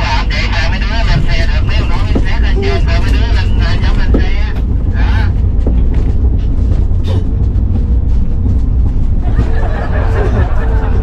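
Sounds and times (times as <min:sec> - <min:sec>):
voices: 0:00.0 - 0:05.4
van driving rumble: 0:00.0 - 0:11.0.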